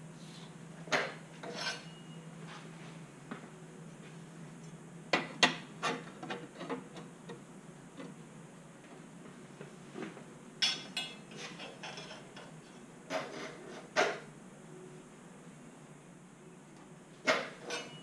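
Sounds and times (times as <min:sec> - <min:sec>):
steel plates clanking on table: 0:17.3 - 0:18.0.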